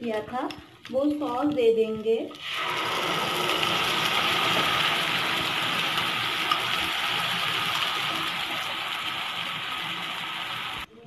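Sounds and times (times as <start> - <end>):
sauce sizzling in hot oil: 2.3 - 10.9.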